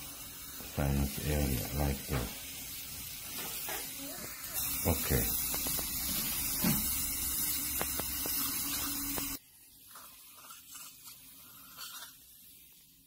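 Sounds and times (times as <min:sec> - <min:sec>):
steady hiss: 0:00.0 - 0:09.8.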